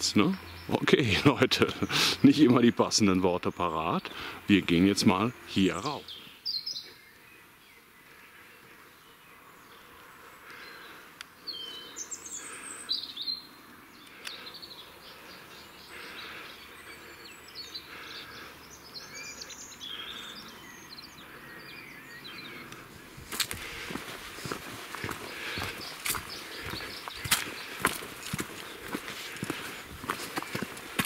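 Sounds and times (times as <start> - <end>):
small birds singing: 0.0 - 31.0
footsteps on dirt trail: 22.7 - 31.0.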